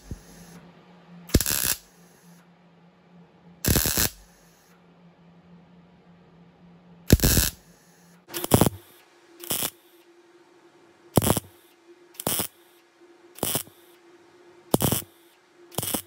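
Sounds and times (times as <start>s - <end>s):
mig welder bursts: 0.0s - 0.6s, 1.3s - 2.3s, 3.6s - 4.7s, 7.1s - 10.0s, 11.2s - 12.8s, 13.4s - 13.9s, 14.7s - 16.0s.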